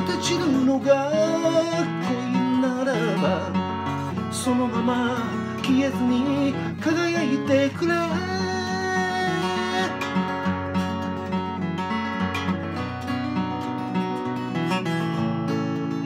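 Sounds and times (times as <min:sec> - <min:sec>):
man singing: 0:00.0 - 0:10.5
fingerpicked acoustic guitar: 0:00.0 - 0:16.0.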